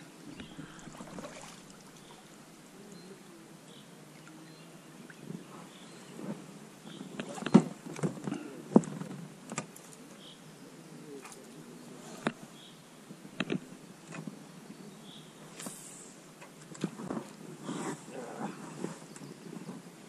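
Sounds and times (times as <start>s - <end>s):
bird chirping: 0.2s - 6.2s.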